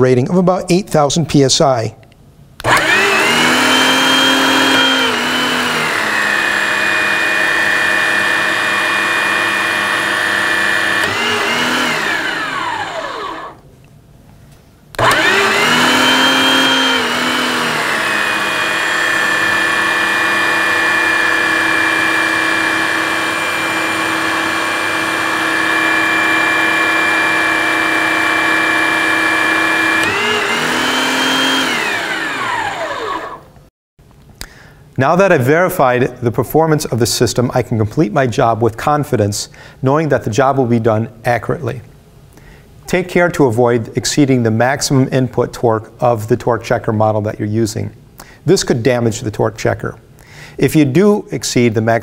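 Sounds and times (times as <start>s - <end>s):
electric hydraulic pump motor: 2.6s - 13.6s, 15.0s - 33.6s.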